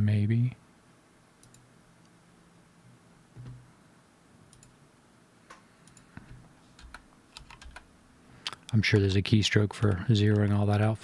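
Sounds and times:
computer mouse clicks: 1.4 - 1.7, 4.5 - 4.8, 5.5 - 9.1, 9.8 - 10.5.

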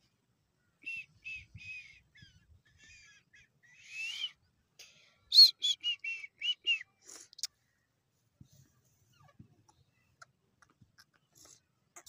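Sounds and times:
bird chirping: 0.6 - 4.5
loud shrill bird calls: 1.0 - 4.4.

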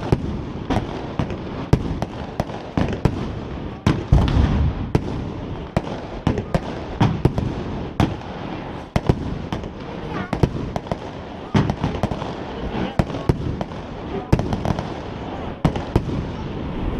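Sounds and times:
deep firework boom: 0.0 - 8.3
fireworks bangs and crackles: 0.0 - 16.9.

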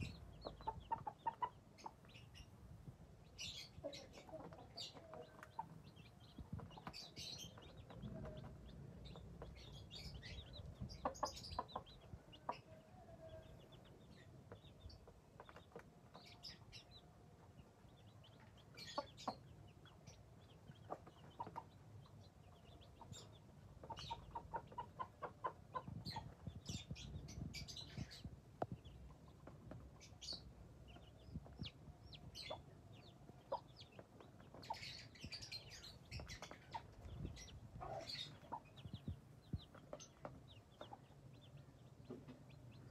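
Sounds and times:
hen clucking: 0.0 - 2.4, 3.5 - 12.8, 17.9 - 28.2, 28.8 - 42.9
chicks peeping: 0.0 - 42.9.

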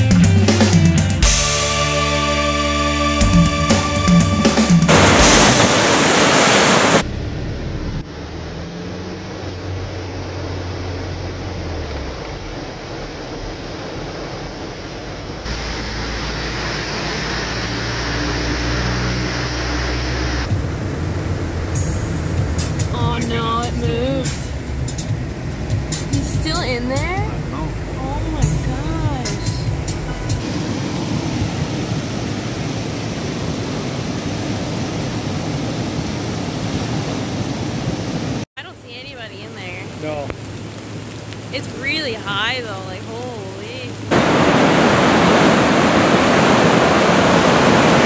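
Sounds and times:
low engine hum: 0.0 - 48.0
loud rushing noise: 0.6 - 8.1, 44.1 - 48.0
floodwater rushing: 0.6 - 48.0
road and rain noise inside car: 6.6 - 48.0.

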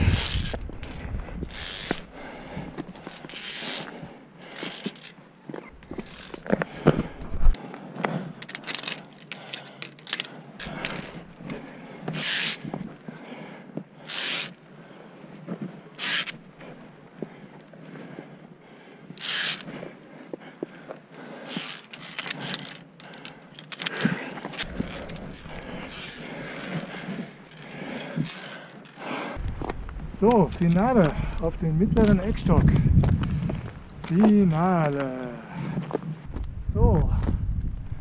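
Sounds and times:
carabiners clinking on steel cable: 0.0 - 2.1, 2.8 - 7.4, 8.4 - 12.7, 14.0 - 14.6, 16.0 - 16.4, 19.2 - 19.7, 21.4 - 29.0.

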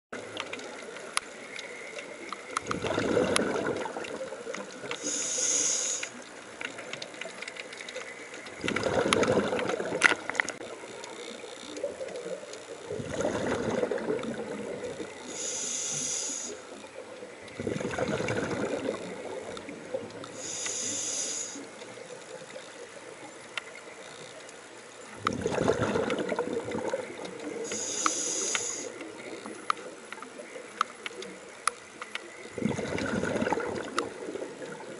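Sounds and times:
exhaled air bubbling: 2.5 - 6.2, 8.5 - 10.7, 11.8 - 21.8, 25.1 - 30.6, 32.3 - 34.9
regulator inhale hiss: 4.9 - 6.2, 15.2 - 16.8, 20.3 - 21.8, 27.6 - 29.1.

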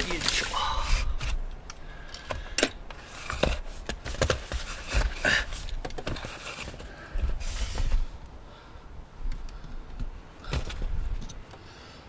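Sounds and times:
plastic sheet rustling: 0.0 - 1.4.

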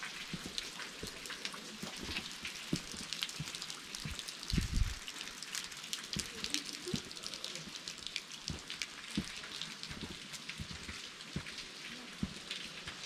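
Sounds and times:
footsteps thudding on trail: 2.7 - 5.0.

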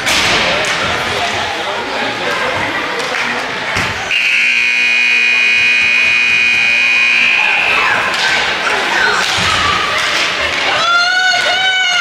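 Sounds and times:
scoreboard buzzer: 4.1 - 7.8.

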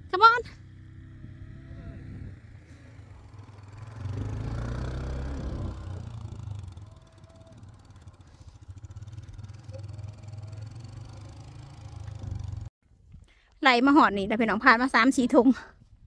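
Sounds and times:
quad bike engine running: 0.0 - 12.7.

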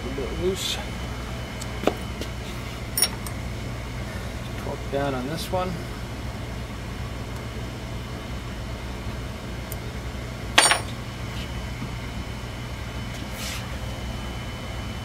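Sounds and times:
low hum: 0.0 - 15.0
metal tool clinking on steel: 3.0 - 3.3, 10.6 - 10.9.

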